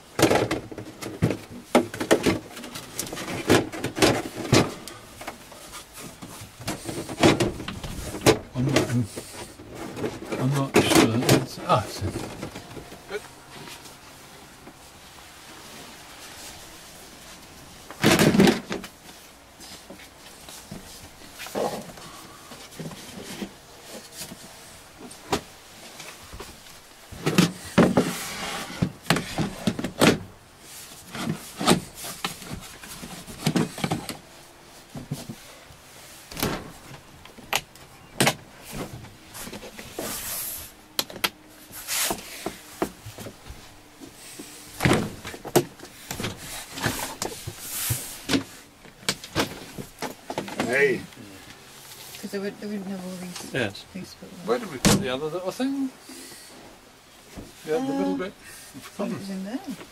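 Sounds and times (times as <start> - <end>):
rustling: 0.1 - 59.9.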